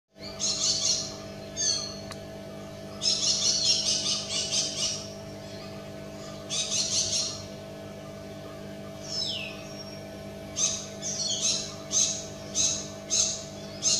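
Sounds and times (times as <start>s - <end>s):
faint steady hum: 0.1s - 13.9s
parakeet shrill chattering calls: 0.2s - 2.0s, 3.0s - 7.5s, 10.6s - 13.9s.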